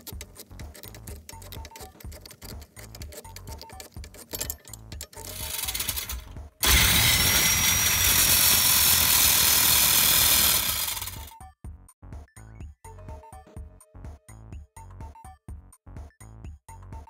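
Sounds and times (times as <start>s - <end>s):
background music: 0.0s - 17.0s
angle grinder cutting metal: 5.3s - 11.3s.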